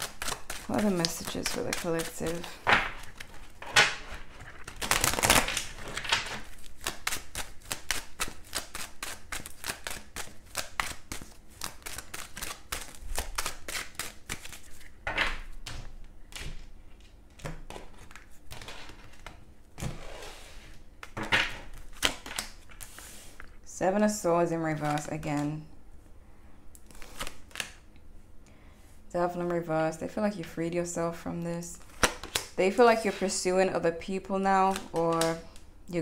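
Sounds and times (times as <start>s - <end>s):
cards being shuffled: 0.0s - 23.5s, 24.7s - 25.6s, 26.8s - 27.8s, 31.8s - 33.4s, 34.6s - 35.6s.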